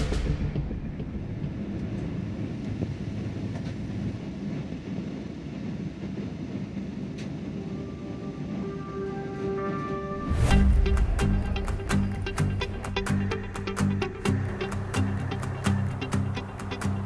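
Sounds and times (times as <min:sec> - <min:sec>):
airliner engines and airflow: 0:00.0 - 0:17.0
held musical tones: 0:07.4 - 0:17.0.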